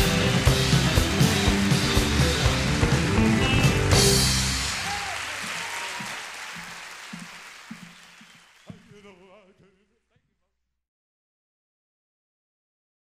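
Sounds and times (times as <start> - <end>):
band chord ending: 0.0 - 5.1
audience applause: 1.3 - 9.2.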